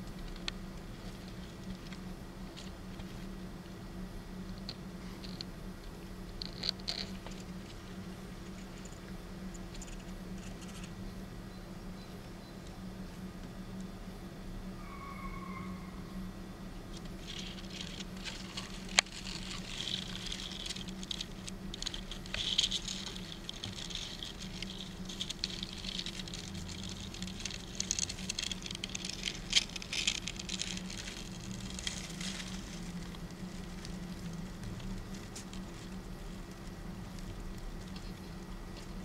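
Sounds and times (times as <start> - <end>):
insect chewing dry crackling: 4.5 - 11.0, 16.9 - 39.0.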